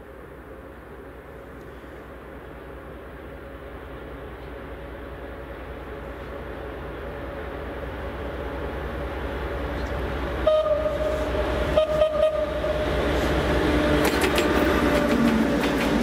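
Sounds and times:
locomotive engine rumble: 0.0s - 16.0s
train horn: 10.4s - 13.0s
wheels clicking over rail joints: 13.1s - 16.0s.

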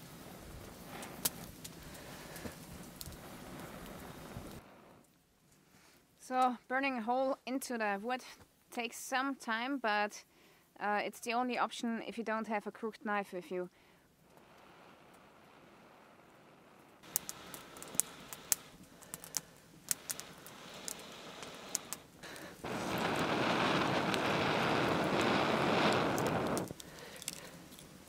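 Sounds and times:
breath blowing on ember: 0.0s - 5.0s, 13.8s - 28.0s
fire crackling and popping: 0.0s - 5.5s, 14.0s - 28.0s.

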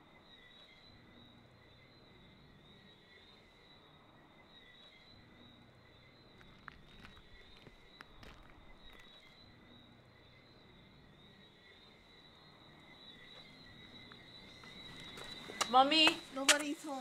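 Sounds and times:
crickets chirping: 0.0s - 17.0s
soft footsteps: 6.4s - 9.4s, 13.4s - 16.8s.

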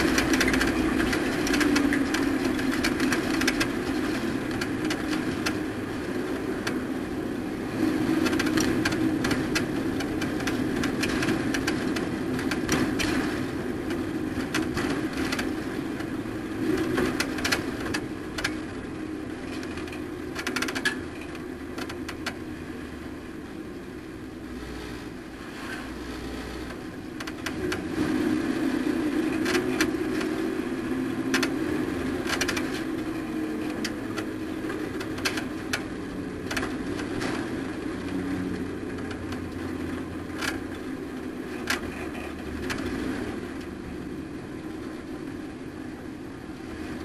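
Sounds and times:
clicks and rattles: 0.0s - 5.6s, 8.2s - 16.1s, 16.8s - 18.7s, 19.4s - 22.4s, 27.2s - 27.8s, 31.3s - 31.6s, 32.2s - 38.1s.

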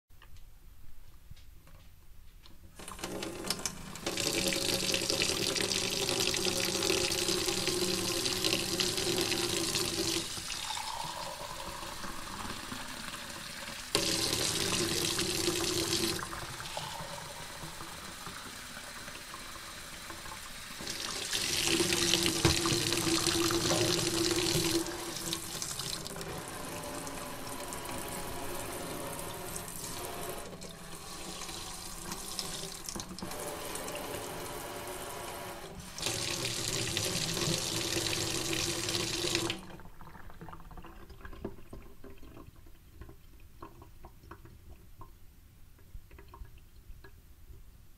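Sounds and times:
tap water filling a glass: 2.8s - 27.1s, 35.9s - 45.2s.

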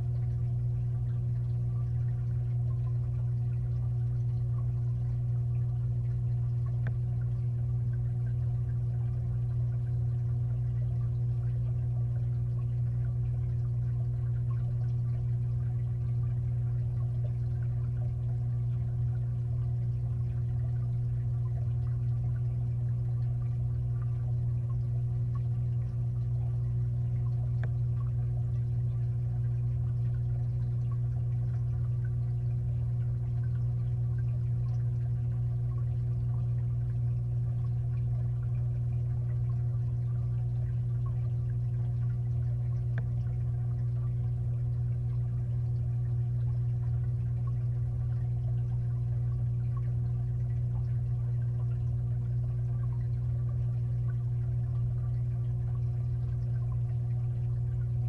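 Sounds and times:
aquarium filter humming: 0.0s - 58.0s
moving water: 0.0s - 58.0s
faint ticks: 5.4s - 8.8s, 24.0s - 32.2s, 42.0s - 43.3s.

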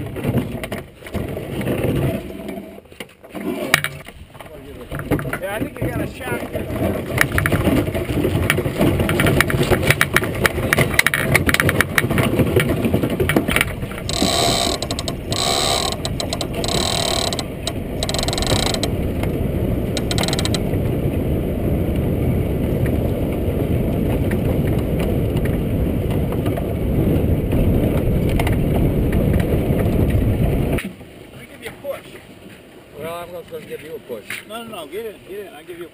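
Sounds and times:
dense clicking: 8.4s - 19.3s, 19.9s - 20.7s.

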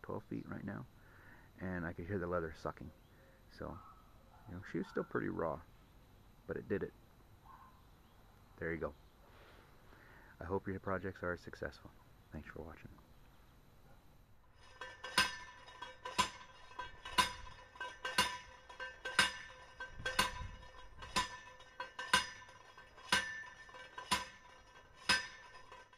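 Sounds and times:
metallic clangs of pipe driving: 14.5s - 25.9s.

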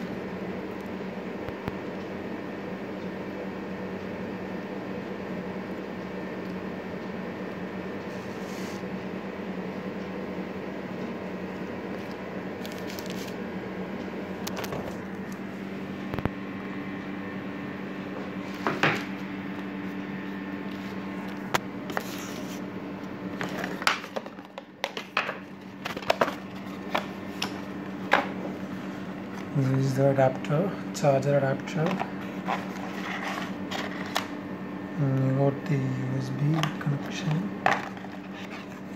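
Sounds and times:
steady low hum: 0.0s - 38.9s
plastic wrap crinkling: 12.6s - 13.4s.

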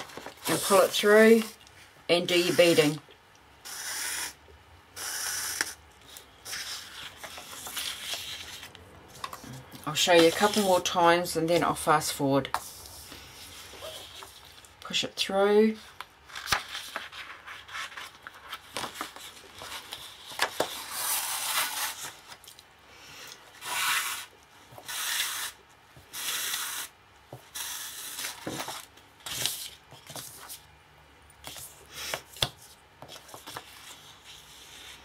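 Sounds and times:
paper rustling: 16.2s - 22.6s.

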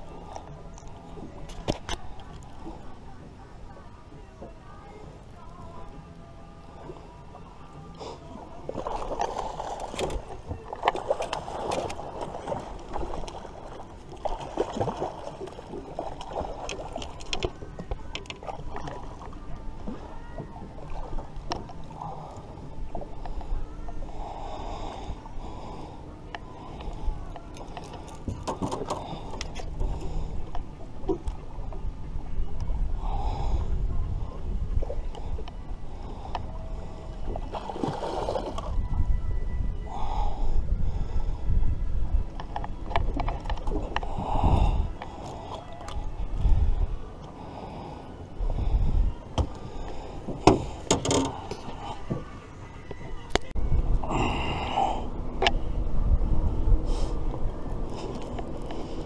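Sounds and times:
wind rumble on microphone: 0.0s - 59.0s
fishing rod and reel clatter: 16.2s - 19.2s, 49.4s - 54.4s.

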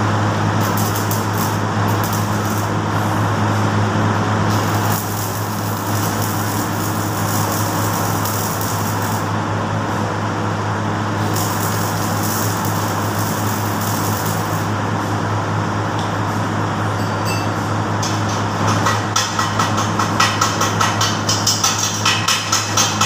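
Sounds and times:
welding arc crackling: 0.0s - 15.0s
low electrical hum: 0.0s - 23.0s.

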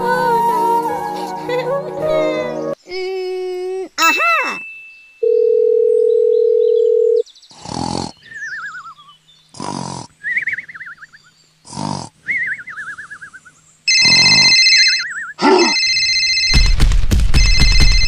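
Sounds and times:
phone ringtone beeping: 5.2s - 7.2s, 13.9s - 16.7s, 17.4s - 18.0s
cartoon snoring: 7.5s - 8.4s, 9.5s - 10.3s, 11.6s - 12.4s, 14.0s - 14.6s, 15.4s - 15.8s
wavering whistle: 10.2s - 11.2s, 12.3s - 13.5s.

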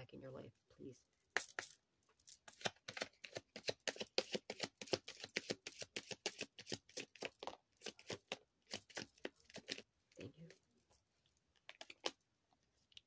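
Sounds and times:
cards shuffled by hand: 1.4s - 9.9s.

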